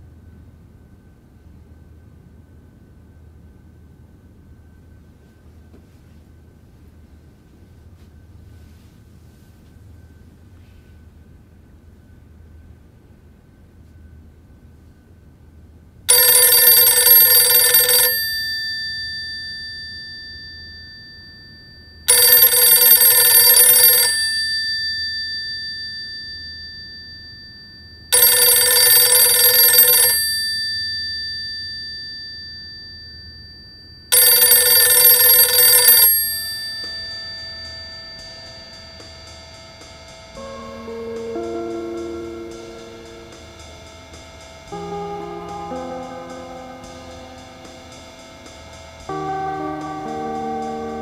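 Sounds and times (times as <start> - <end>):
telephone bell ringing: 16.1 - 41.5.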